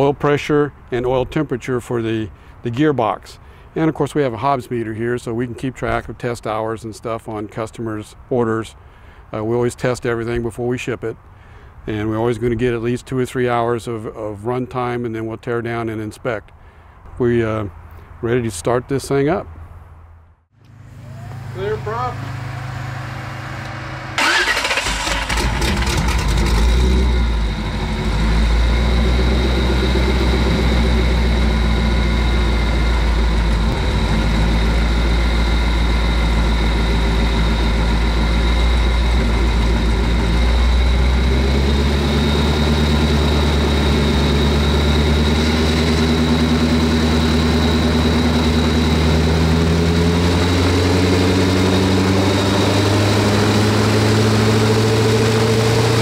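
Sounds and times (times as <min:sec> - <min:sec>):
propeller turning: 0:20.6 - 0:56.0
engine cranking and running: 0:21.0 - 0:56.0.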